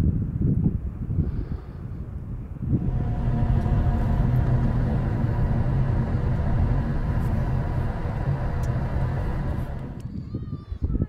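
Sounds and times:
engine running: 2.6 - 10.2.

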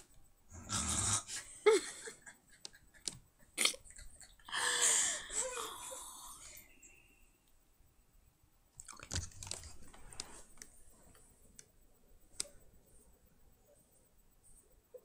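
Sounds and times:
girl's wheezing laughter: 1.2 - 6.2
sharp clicks: 2.6 - 3.3.

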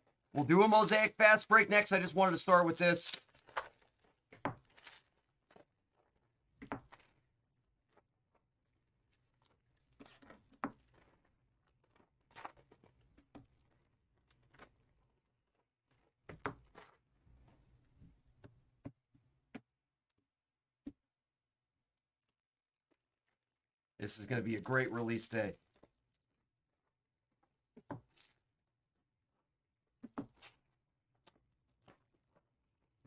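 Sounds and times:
packaging rustling and tearing: 2.7 - 6.2.

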